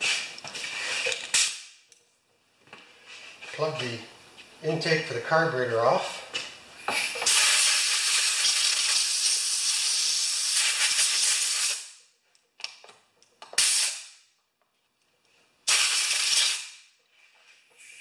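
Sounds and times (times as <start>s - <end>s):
compressed air blow gun hissing: 6.9s - 11.9s, 15.7s - 16.7s.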